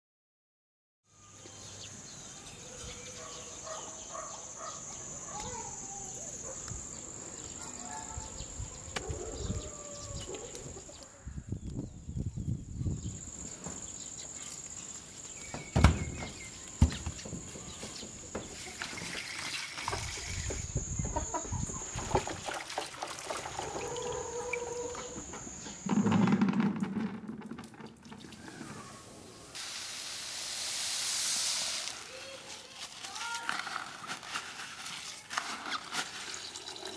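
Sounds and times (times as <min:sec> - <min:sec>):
rooster crowing: 0:09.0 - 0:10.8, 0:23.5 - 0:25.3
chickens clucking: 0:17.4 - 0:26.3.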